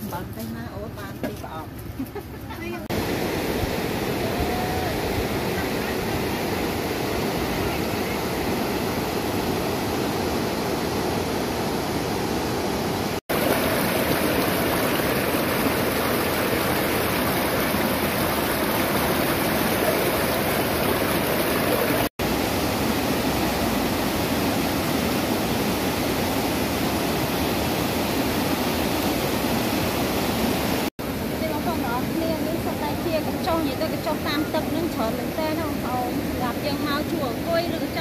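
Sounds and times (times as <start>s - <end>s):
water rushing over rocks: 2.9s - 32.7s.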